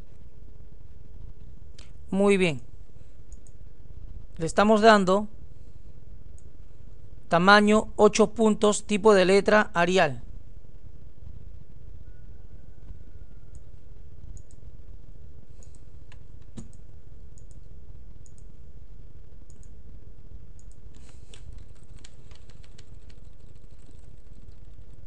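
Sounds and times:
steady low hum: 0.0 - 25.0
keyboard and mouse clicks: 3.3 - 3.6, 14.3 - 14.6, 15.6 - 16.8, 17.4 - 17.6, 18.2 - 18.5, 19.5 - 19.8, 20.6 - 25.0.

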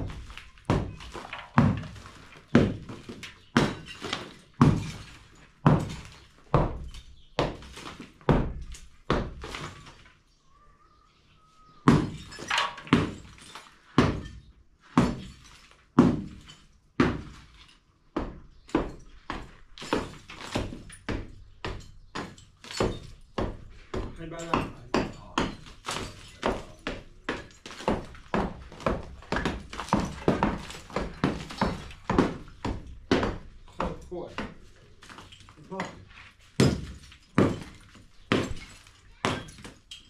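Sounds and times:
hammer knocking on masonry wall: 18.2 - 34.6.

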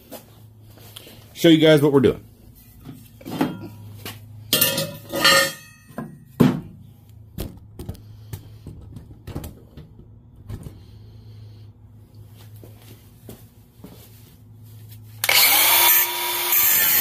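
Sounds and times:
steady low hum: 0.0 - 15.3
metal tools clanking: 2.8 - 3.9, 4.5 - 6.2.

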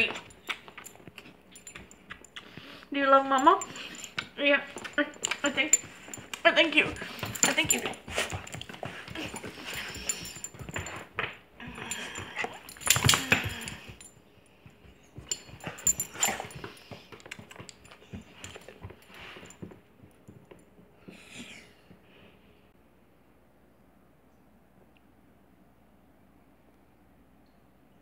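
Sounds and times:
metal collar tag jingling: 0.0 - 19.6.

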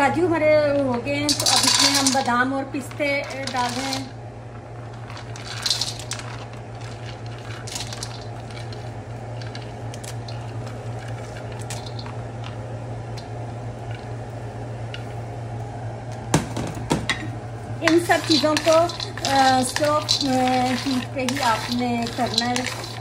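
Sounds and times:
constant low hum: 0.0 - 23.0
nuts sizzling in oil: 1.3 - 4.2, 4.9 - 13.4, 17.7 - 23.0.

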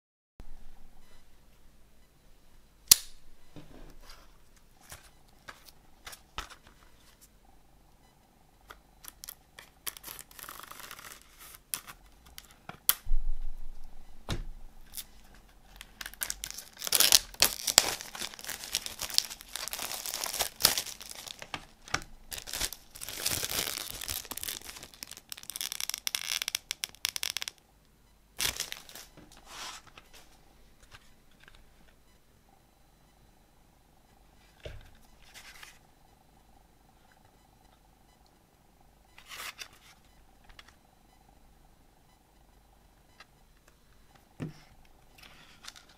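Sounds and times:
cellophane crinkling and tearing: 9.0 - 12.5, 15.8 - 27.6, 28.4 - 29.1.

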